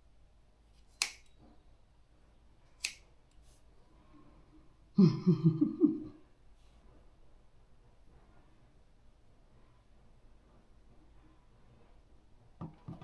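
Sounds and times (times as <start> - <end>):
scissors cutting wet hair: 0.9 - 1.3.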